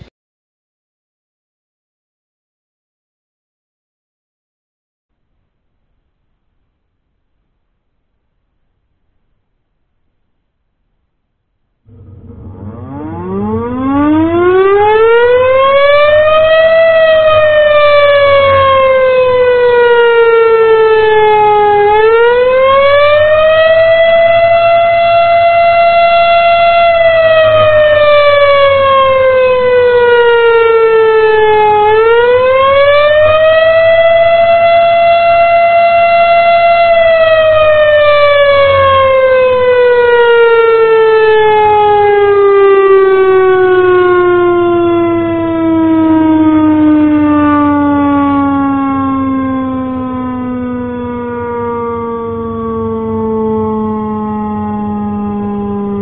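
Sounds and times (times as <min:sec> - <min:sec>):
warning siren wailing: 0:11.9 - 0:56.0.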